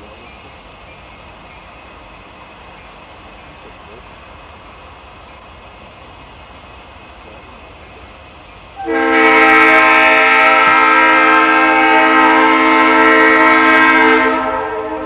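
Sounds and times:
locomotive air horn blast: 8.8 - 15.0.

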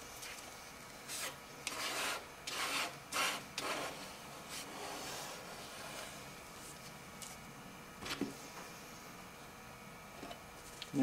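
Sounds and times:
putty knife scraping paste: 1.1 - 6.2
faint rubbing: 1.1 - 6.8.

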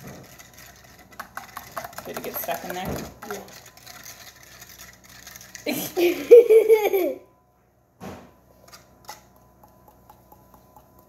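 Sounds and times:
girl giggling: 5.7 - 7.2.

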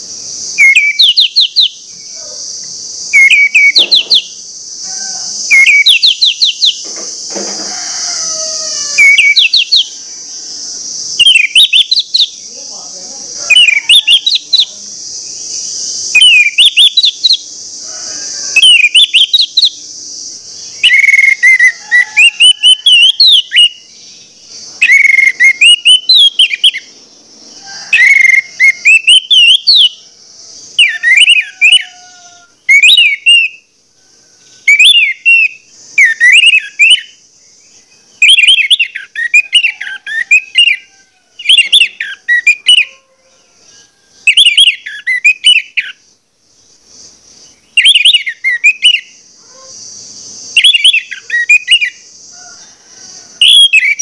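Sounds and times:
thrush singing whistled phrases: 0.0 - 2.4, 3.0 - 4.5, 5.4 - 6.9, 8.3 - 10.0, 10.8 - 12.8, 13.5 - 17.6, 18.5 - 19.8, 20.5 - 26.9, 27.9 - 30.0, 30.7 - 32.0, 32.7 - 33.7, 34.6 - 37.2, 38.1 - 43.0, 44.2 - 46.0, 47.6 - 49.2, 50.4 - 52.0, 53.4 - 54.0.

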